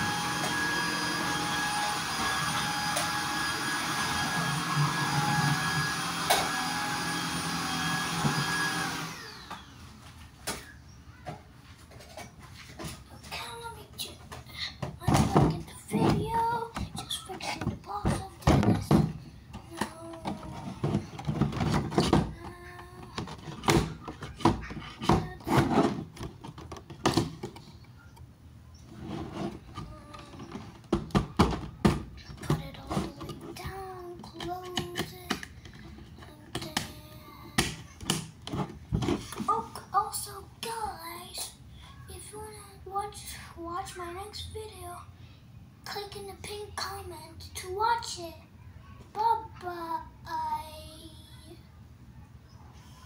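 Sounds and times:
handheld vacuum cleaner running: 0:00.0 - 0:09.8
plastic rubbing and scraping: 0:11.7 - 0:27.8, 0:28.8 - 0:40.2.

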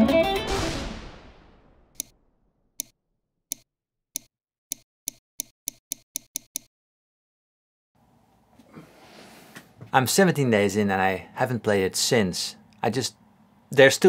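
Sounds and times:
sharp ticking: 0:02.8 - 0:06.7.

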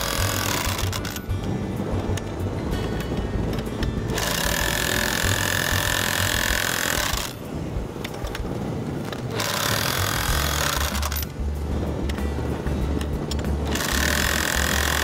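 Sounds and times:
power drill whining: 0:00.0 - 0:01.2, 0:04.1 - 0:07.4, 0:09.3 - 0:11.3, 0:13.7 - 0:15.0.

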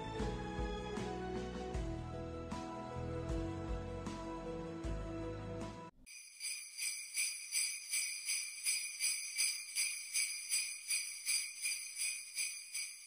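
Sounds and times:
jingle bells shaken: 0:06.1 - 0:13.0.

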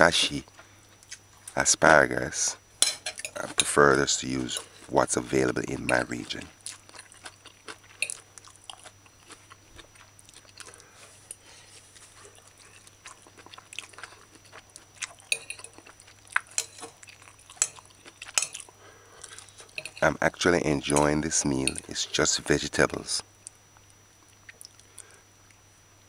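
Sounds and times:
chewing: 0:00.2 - 0:01.6, 0:03.1 - 0:20.2, 0:20.8 - 0:22.0, 0:23.4 - 0:25.6
fork scraping ceramic plate: 0:02.8 - 0:06.4, 0:15.3 - 0:15.8, 0:16.5 - 0:17.0, 0:19.6 - 0:20.0.

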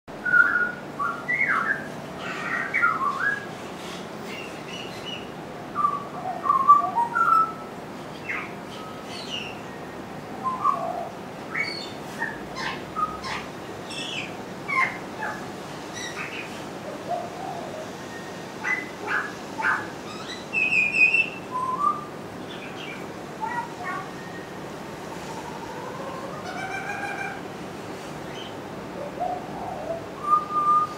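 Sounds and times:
bird singing whistled notes: 0:00.2 - 0:01.9, 0:02.6 - 0:03.5, 0:04.4 - 0:07.6, 0:08.2 - 0:15.4, 0:18.1 - 0:24.6, 0:30.2 - 0:30.9.

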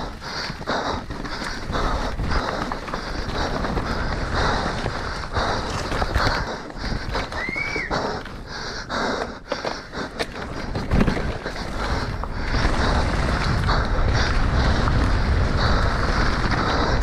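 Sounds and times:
bike rattling and clacking: 0:00.0 - 0:17.0
bike tyres on dirt: 0:00.0 - 0:17.0
rider breathing hard: 0:00.0 - 0:17.0
wind noise: 0:10.7 - 0:17.0.

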